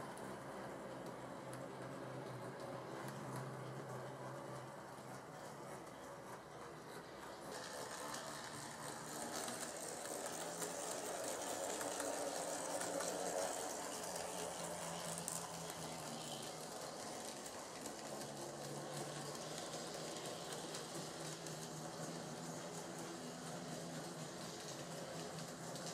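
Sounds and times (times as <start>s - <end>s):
model train motor whirring: 4.4s - 25.9s
wheels rattling on rail joints: 5.1s - 25.9s.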